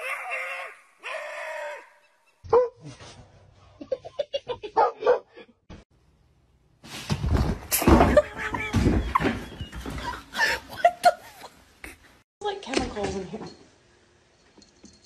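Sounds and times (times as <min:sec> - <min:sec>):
dog barking and yelping: 0:04.8 - 0:05.4.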